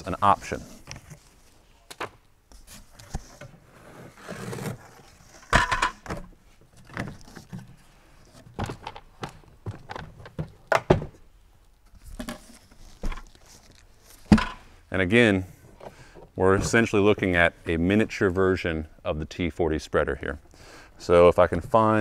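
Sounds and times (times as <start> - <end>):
cardboard and packing rustling: 6.2 - 10.7, 11.9 - 14.3.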